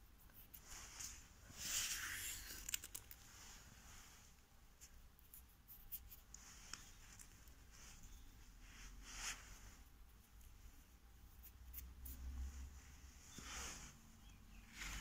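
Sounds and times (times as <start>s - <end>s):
faint ticks and rustles: 4.8s - 8.2s.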